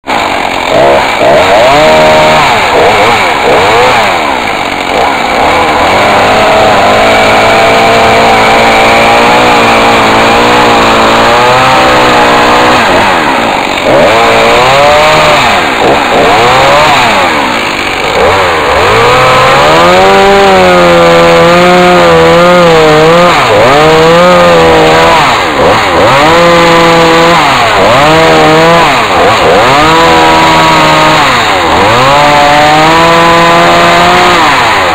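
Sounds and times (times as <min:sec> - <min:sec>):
chainsaw cutting wood: 0:00.0 - 0:34.9.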